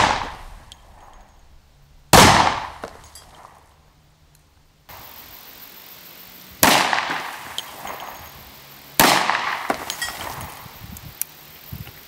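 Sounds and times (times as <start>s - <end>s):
pistol shots with echo: 0.0s - 1.2s, 2.1s - 3.0s, 6.6s - 8.1s, 9.0s - 10.4s.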